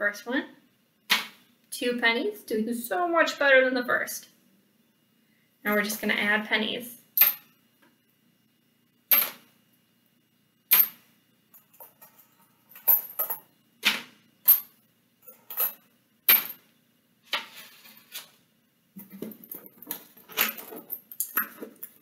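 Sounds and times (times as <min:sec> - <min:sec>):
coins clinking: 0:11.6 - 0:13.5, 0:19.0 - 0:22.0.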